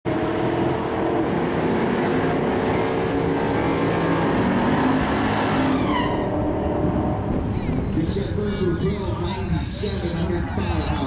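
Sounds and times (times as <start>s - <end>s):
car engine revving high: 0.1s - 7.5s
tires spinning: 0.1s - 11.0s.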